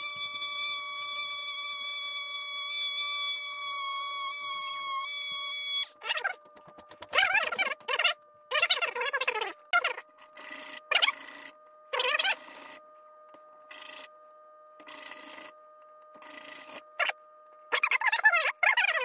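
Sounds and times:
warbling voice-like sounds: 0:06.0 - 0:06.4, 0:07.1 - 0:10.0, 0:10.9 - 0:12.8, 0:16.2 - 0:19.0.

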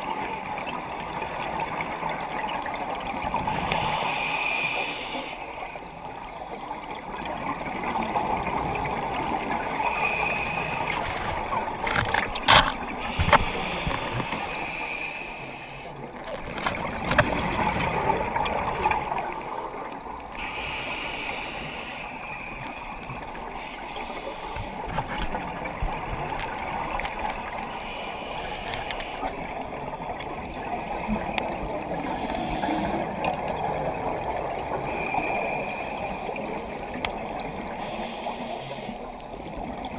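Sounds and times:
regulator hissing on inhale: 0:02.8 - 0:07.1, 0:08.7 - 0:11.1, 0:12.9 - 0:16.2, 0:20.3 - 0:24.9, 0:27.5 - 0:29.5, 0:30.9 - 0:33.2, 0:34.8 - 0:39.5.

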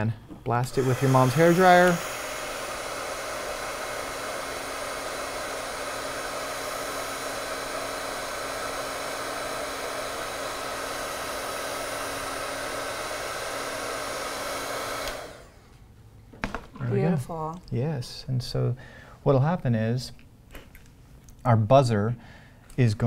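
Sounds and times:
heat gun blowing air: 0:00.6 - 0:15.7.

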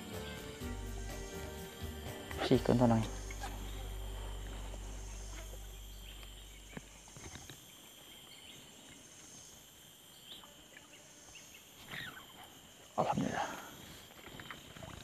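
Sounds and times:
low hum: 0:00.0 - 0:08.6
insects droning: 0:00.0 - 0:15.0.

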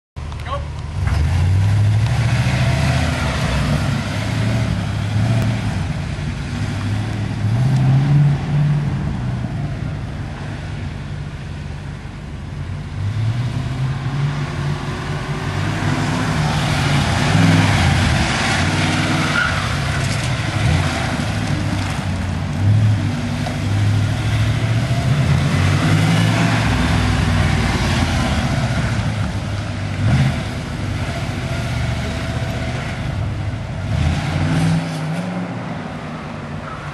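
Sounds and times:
car engine revving: 0:12.9 - 0:36.4.

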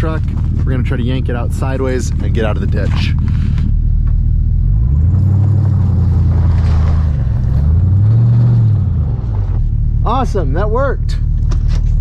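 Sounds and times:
truck engine revving under load: 0:01.6 - 0:10.3.

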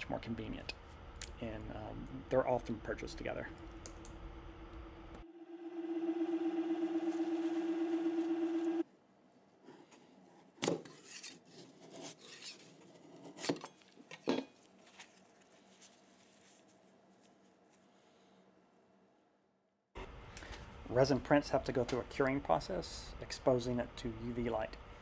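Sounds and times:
motor humming: 0:03.5 - 0:08.8.

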